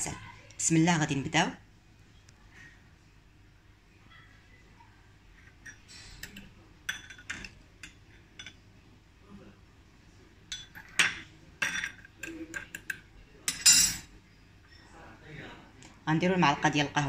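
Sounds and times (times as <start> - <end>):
spoons clinking against glass bowls: 5.5 - 8.6, 10.5 - 14.1.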